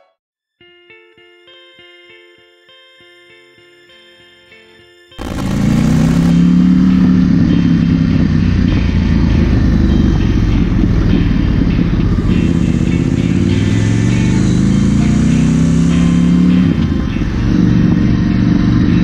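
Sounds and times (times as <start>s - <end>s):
steady rush of noise: 5.2s - 15.2s
motorcycle engine running: 5.2s - 19.0s.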